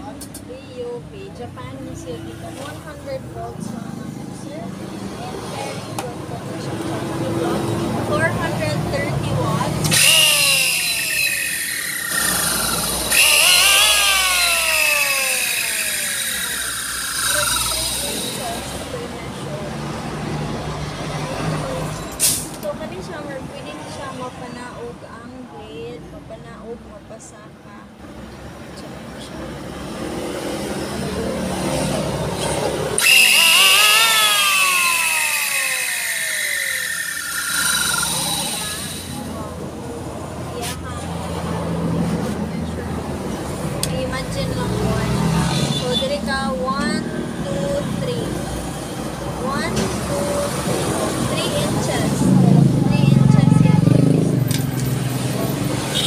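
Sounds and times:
electric planer motor whining: 0:09.8 - 0:19.0, 0:33.0 - 0:39.6.

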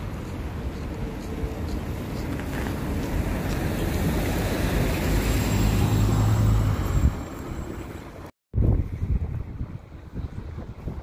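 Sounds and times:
bus driving past: 0:00.0 - 0:08.3.

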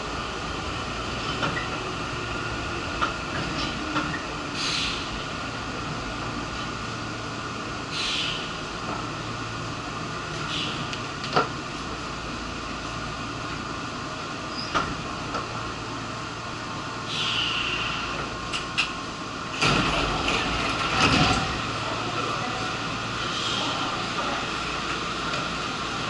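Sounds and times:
train doors sliding open: 0:00.0 - 0:12.1, 0:12.8 - 0:26.0
train interior low hum: 0:00.0 - 0:26.0
short air hisses: 0:04.6 - 0:05.1, 0:07.9 - 0:08.5, 0:17.1 - 0:18.0.

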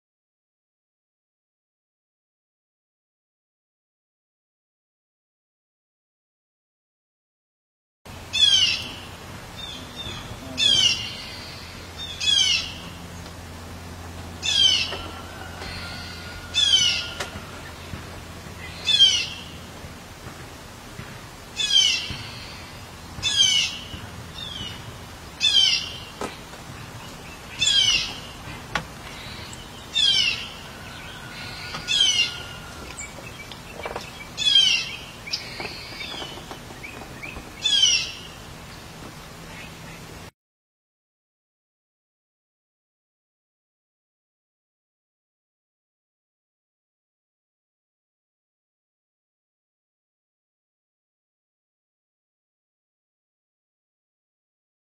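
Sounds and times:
blue jay calling: 0:08.2 - 0:19.9, 0:21.4 - 0:40.0.

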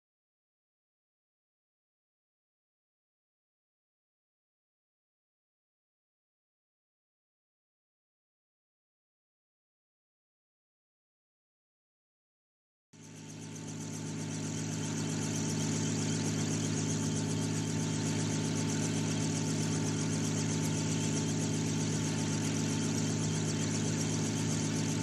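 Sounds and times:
low engine-like drone: 0:13.0 - 0:25.0.

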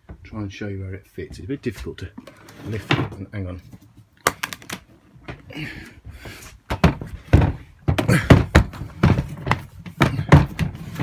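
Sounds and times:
plastic toilet knocking and thunking: 0:06.7 - 0:11.0.

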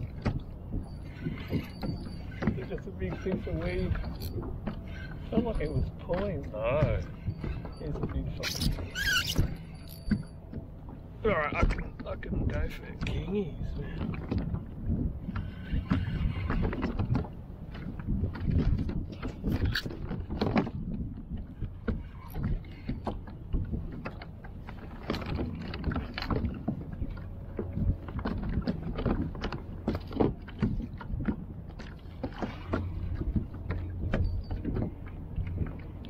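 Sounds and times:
knocks and clicks of fishing gear: 0:00.0 - 0:13.3, 0:14.0 - 0:36.0
steady low rumble: 0:00.0 - 0:36.0
water slapping against kayak hull: 0:10.5 - 0:36.0.

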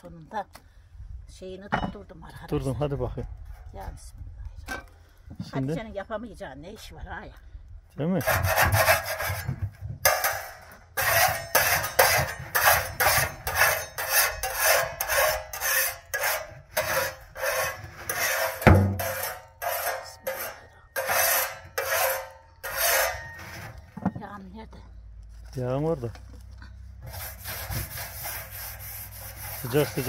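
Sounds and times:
rhythmic rubbing strokes: 0:27.0 - 0:30.0.

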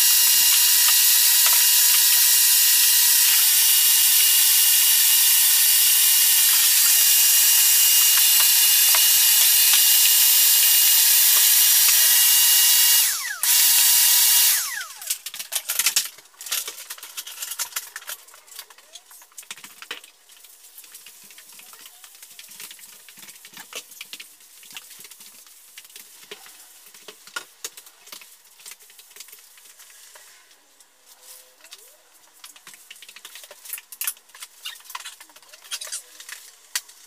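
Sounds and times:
power tool motor whining: 0:00.0 - 0:15.2.

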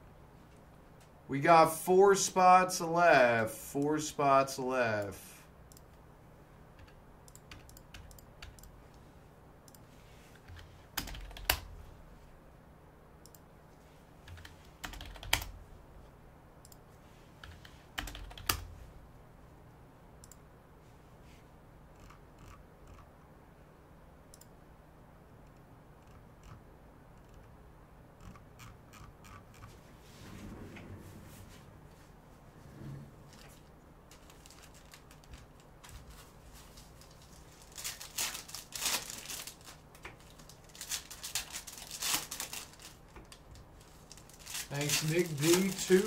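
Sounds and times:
faint steady hum: 0:00.0 - 0:46.0
typing on computer keyboard: 0:06.8 - 0:08.7, 0:10.5 - 0:11.7, 0:14.3 - 0:15.6, 0:17.4 - 0:18.7.

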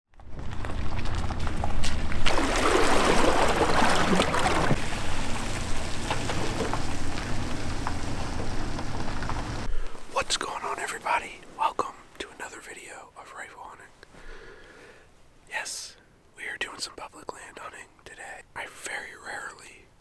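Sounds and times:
engine humming: 0:00.1 - 0:11.4
water rushing around boat hull: 0:00.4 - 0:09.7.

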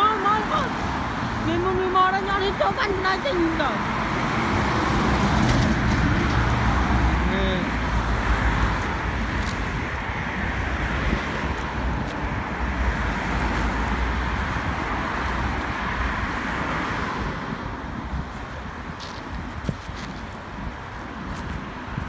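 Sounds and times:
cars passing: 0:00.0 - 0:22.0
wind rumble on microphone: 0:03.5 - 0:22.0.

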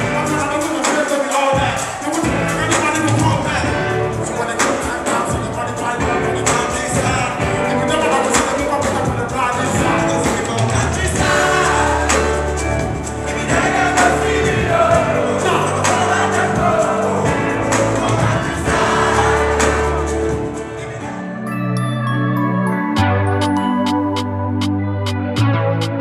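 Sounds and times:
voices singing over bass line: 0:00.0 - 0:21.6
light instrumental tune: 0:19.9 - 0:26.0.

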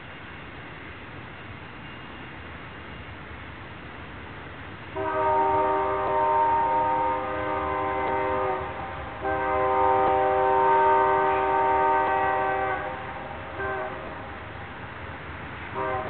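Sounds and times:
passing train rumble: 0:00.0 - 0:16.0
locomotive air horn blasts: 0:05.0 - 0:14.4, 0:15.8 - 0:16.0.

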